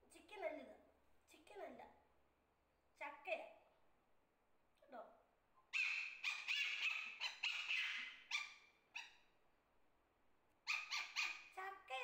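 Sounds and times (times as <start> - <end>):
puppy yipping and whining: 5.7 - 9.2, 10.7 - 11.5.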